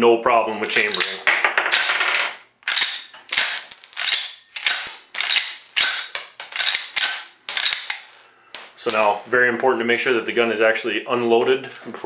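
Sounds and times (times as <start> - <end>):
pistol slide metallic clacks: 0.7 - 1.9, 2.6 - 9.2.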